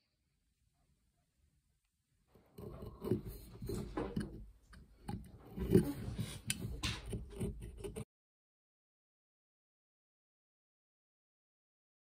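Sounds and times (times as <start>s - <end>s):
wood knocking and scraping on wood: 2.4s - 8.1s.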